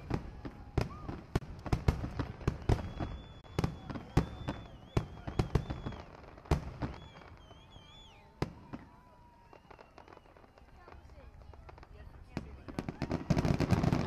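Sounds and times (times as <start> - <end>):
fireworks bursting: 0.0 - 14.0
high wavering whistle: 2.6 - 6.2, 6.8 - 10.9.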